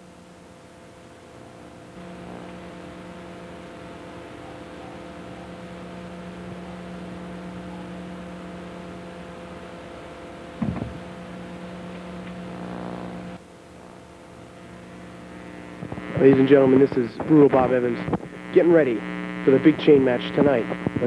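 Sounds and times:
electrical hum: 0:00.0 - 0:21.0
tape hiss: 0:00.0 - 0:21.0
short knock: 0:10.6 - 0:11.0.

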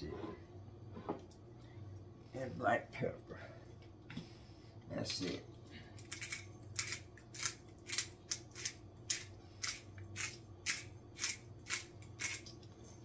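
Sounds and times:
faint low hum: 0:00.0 - 0:13.0
pepper mill grinding: 0:06.0 - 0:13.0.

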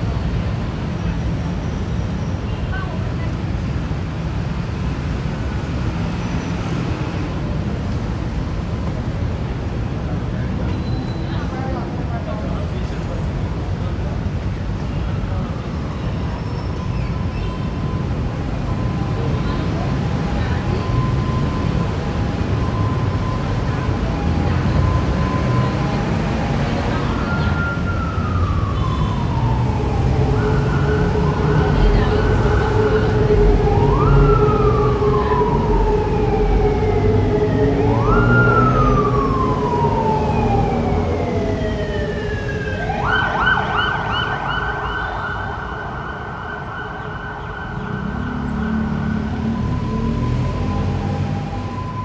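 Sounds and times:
traffic rumble: 0:00.0 - 0:52.0
emergency vehicle siren wailing: 0:04.2 - 0:52.0
fast-pulsing siren tone: 0:27.2 - 0:52.0.

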